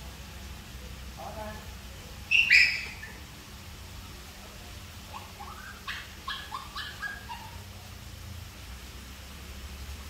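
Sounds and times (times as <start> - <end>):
animal high rising squeaks: 2.3 - 3.2.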